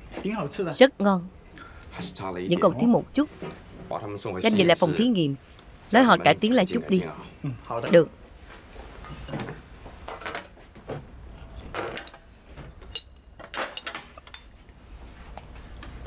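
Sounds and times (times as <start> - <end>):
china cup and saucer clinking: 14.2 - 14.6.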